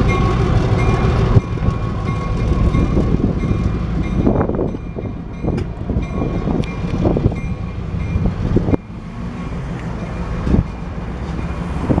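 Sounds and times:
train rumbling on track: 0:00.0 - 0:12.0.

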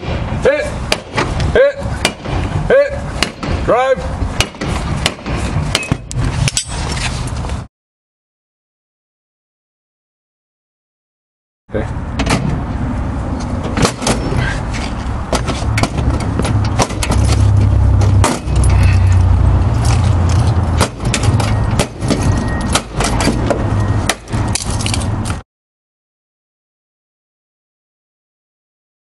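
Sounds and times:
steady low rumble: 0:00.0 - 0:07.7, 0:11.7 - 0:25.4
metal clanks and knocks: 0:13.5 - 0:19.2, 0:19.8 - 0:25.1.

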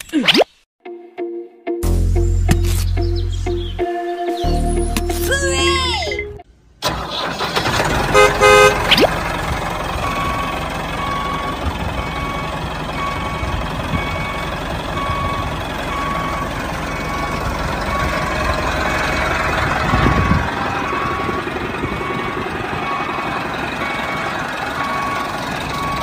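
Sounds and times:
tractor engine running: 0:06.8 - 0:26.0
horn toots: 0:08.0 - 0:09.1.

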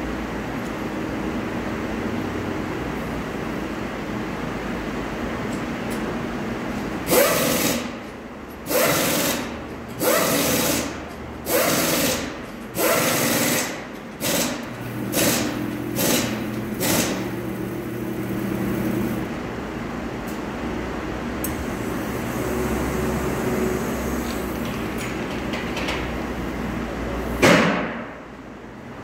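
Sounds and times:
pneumatic power tool bursts: 0:07.1 - 0:07.9, 0:08.6 - 0:17.4.

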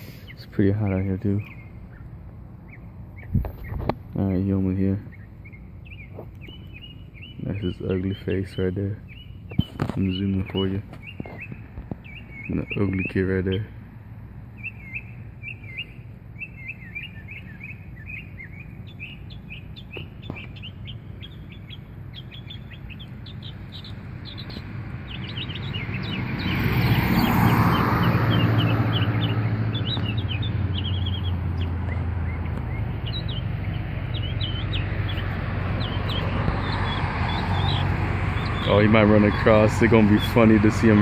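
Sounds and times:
small birds chirping: 0:00.0 - 0:41.0
passing vehicle engine: 0:10.4 - 0:41.0.

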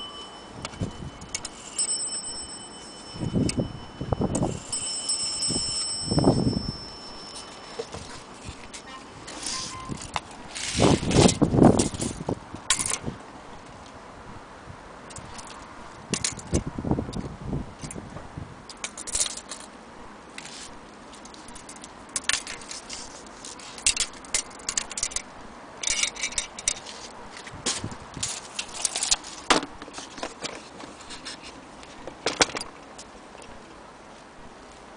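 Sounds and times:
tape measure clicking and scraping: 0:07.8 - 0:13.0, 0:20.4 - 0:31.6.

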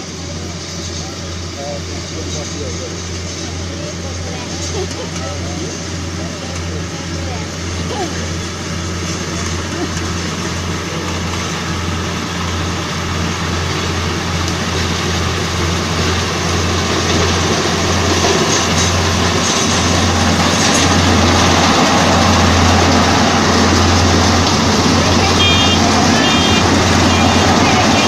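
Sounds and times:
combine harvester engine hum: 0:00.0 - 0:28.0
machinery noise: 0:00.0 - 0:28.0.

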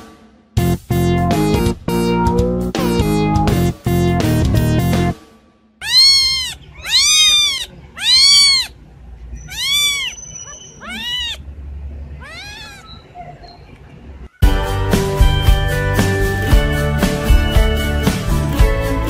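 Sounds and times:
kitten meowing: 0:05.8 - 0:08.8, 0:09.4 - 0:11.4, 0:12.2 - 0:13.0.

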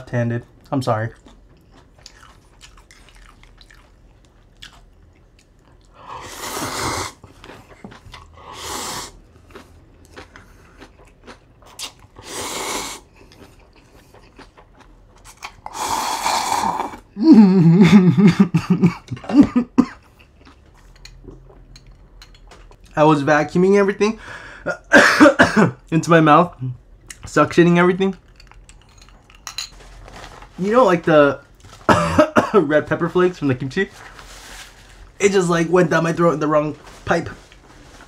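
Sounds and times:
chewing: 0:01.1 - 0:06.0, 0:07.2 - 0:08.4, 0:09.2 - 0:12.3, 0:13.0 - 0:16.1, 0:20.0 - 0:22.0
person coughing: 0:17.2 - 0:20.1, 0:24.7 - 0:25.8, 0:31.9 - 0:32.7.

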